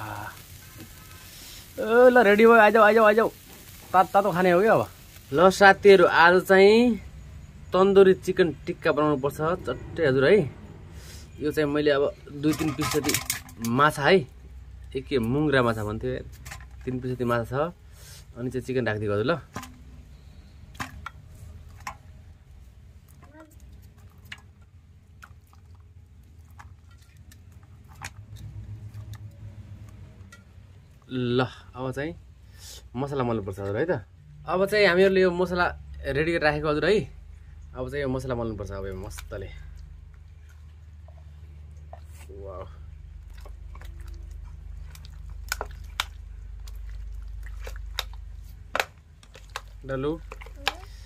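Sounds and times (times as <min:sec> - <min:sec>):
low steady hum: 0:33.3 - 0:51.0
hand squelching meat in paste: 0:39.0 - 0:51.0.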